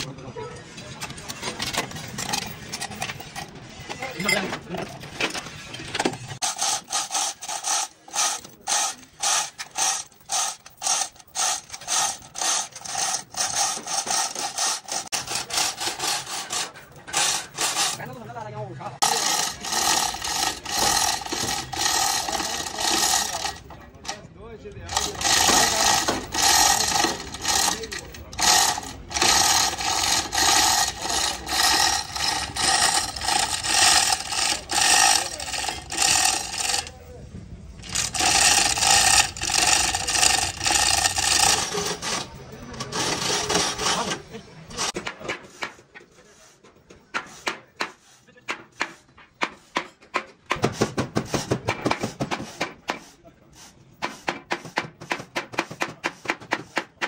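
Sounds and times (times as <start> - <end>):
hand tool rasping: 1.3 - 4.4, 6.4 - 18.3, 19.0 - 24.2, 24.9 - 37.0, 37.8 - 49.9.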